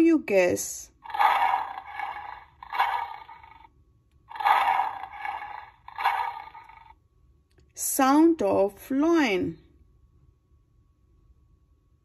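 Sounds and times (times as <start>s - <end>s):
lion roaring: 1.0s - 3.7s, 4.3s - 6.9s.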